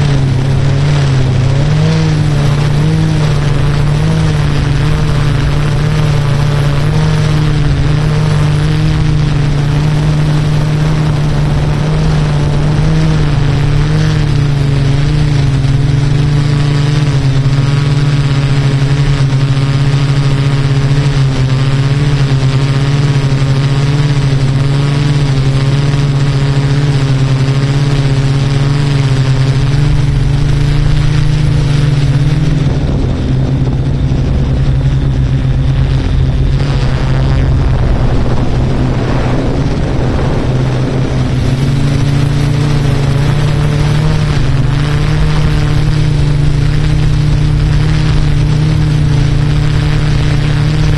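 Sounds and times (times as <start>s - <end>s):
drone propellers humming: 0.0s - 50.9s
rough rushing noise: 0.0s - 50.9s.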